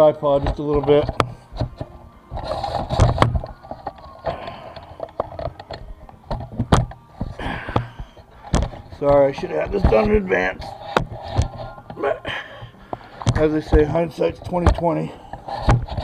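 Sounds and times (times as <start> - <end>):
tripod clicks and knocks: 0.4 - 10.2, 14.5 - 16.0.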